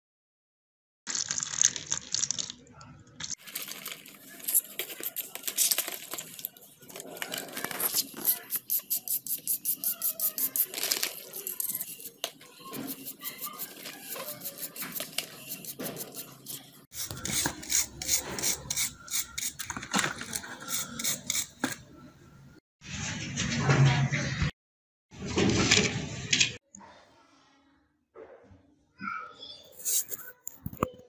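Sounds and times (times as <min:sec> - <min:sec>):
brush scrubbing in soapy water: 0:06.9 - 0:19.6.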